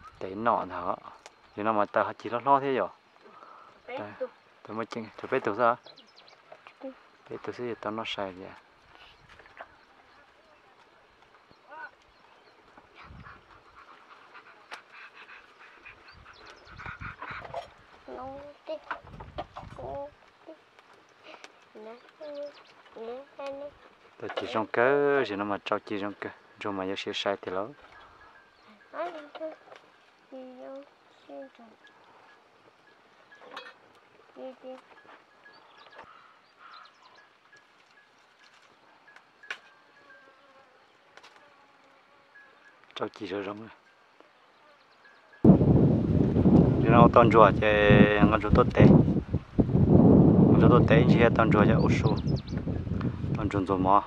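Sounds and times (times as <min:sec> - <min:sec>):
wood fire crackling: 0:06.6 - 0:13.0, 0:17.8 - 0:26.6, 0:45.5 - 0:51.4
faint animal calls: 0:09.0 - 0:23.9, 0:27.7 - 0:40.8.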